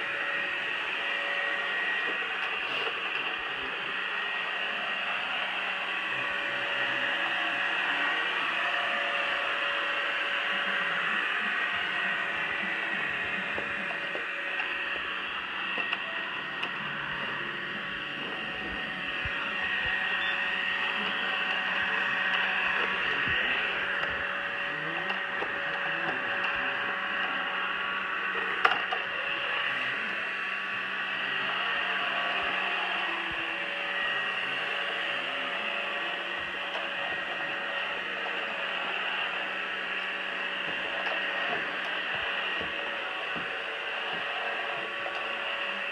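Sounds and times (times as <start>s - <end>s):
robot vacuum whirring: 0.0s - 45.9s.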